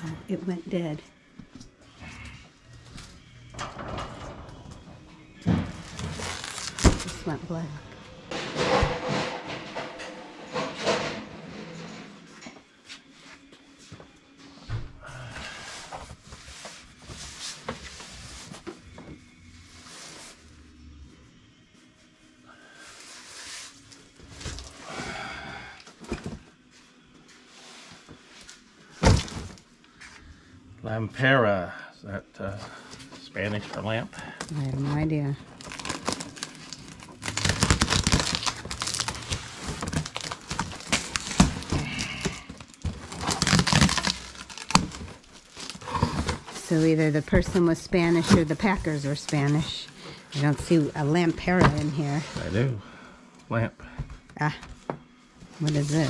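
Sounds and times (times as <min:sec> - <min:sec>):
packing rustling: 0:05.7 - 0:07.2, 0:35.5 - 0:46.9.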